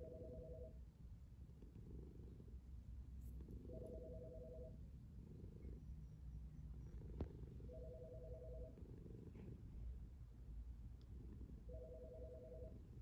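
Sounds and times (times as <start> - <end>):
telephone ringing two-tone trill: 3.7 - 4.8, 7.7 - 8.7, 11.7 - 12.7.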